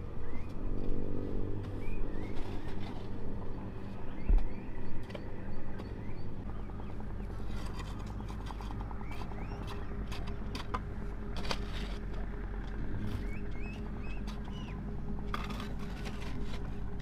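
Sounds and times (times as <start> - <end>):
birds chirping: 0.0 - 1.0, 1.6 - 17.0
steady low hum: 0.0 - 17.0.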